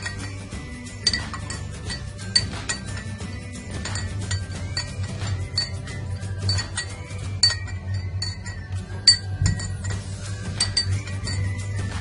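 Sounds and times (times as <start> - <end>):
background music: 0.0 - 12.0
spoon clinking in a glass: 0.0 - 12.0.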